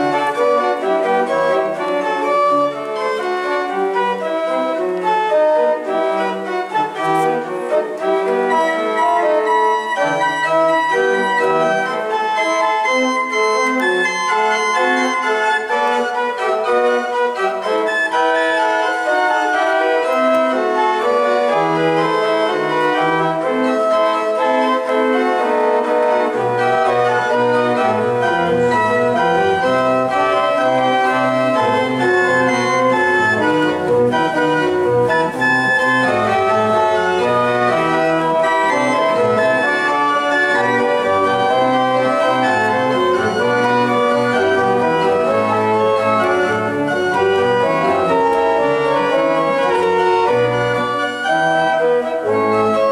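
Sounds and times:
organ playing sustained chords: 0.0s - 52.9s
deep organ bass notes: 24.8s - 52.9s.

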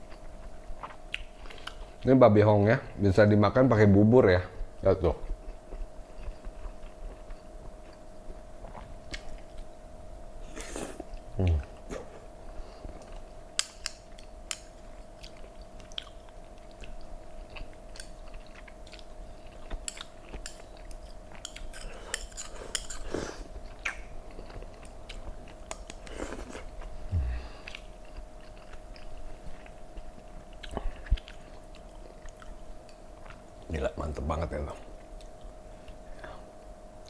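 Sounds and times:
person chewing with smacking: 0.0s - 2.0s, 5.3s - 9.8s, 10.5s - 33.7s, 34.8s - 36.5s
chopsticks clicking on plate: 13.6s - 14.7s.

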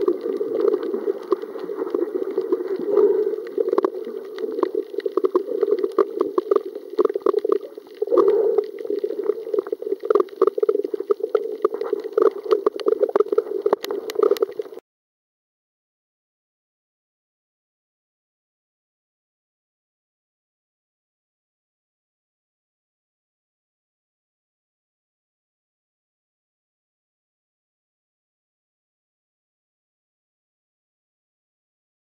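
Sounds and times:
muffled underwater gurgling: 0.0s - 14.8s
underwater clicks: 0.0s - 14.8s.

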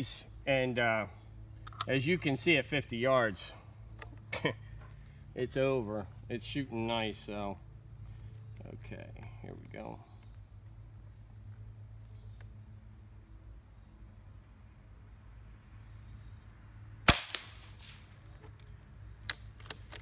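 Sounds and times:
insects chirping: 0.0s - 20.0s
air rifle shot crack: 17.1s - 18.0s.

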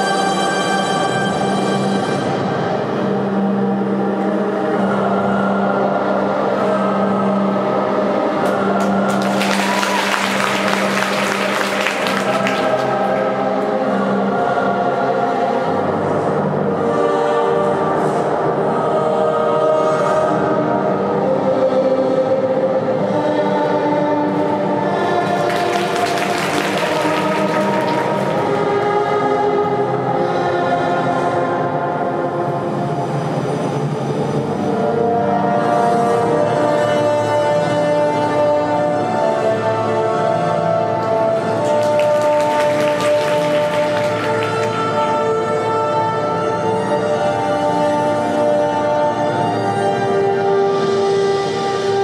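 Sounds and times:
music over loudspeakers: 0.0s - 52.0s
audience applause: 8.4s - 13.5s, 25.0s - 28.9s, 41.5s - 45.1s.

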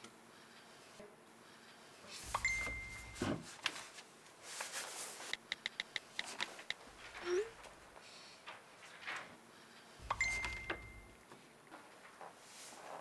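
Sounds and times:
short phone beep: 2.4s - 3.2s, 10.0s - 11.2s
keyboard tap clicks: 5.4s - 6.8s.

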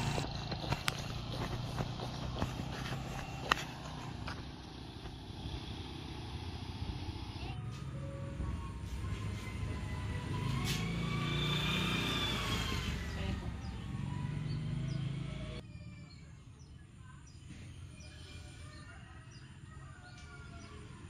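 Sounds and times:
vehicle engine running: 0.0s - 15.6s.

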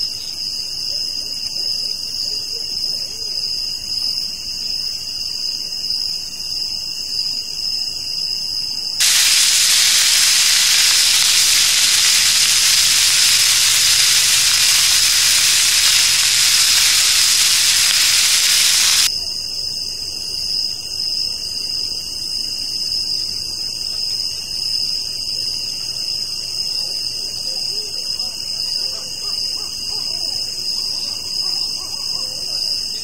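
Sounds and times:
sausages sizzling in a pan: 9.0s - 19.1s.

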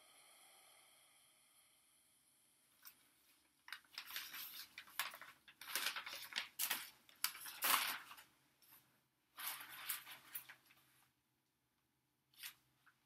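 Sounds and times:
packaging rustling and crinkling: 3.6s - 8.8s, 9.4s - 10.8s.

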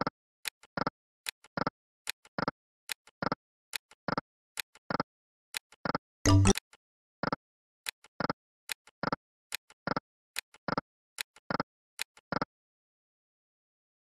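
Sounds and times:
short electronic tone: 6.3s - 6.6s.

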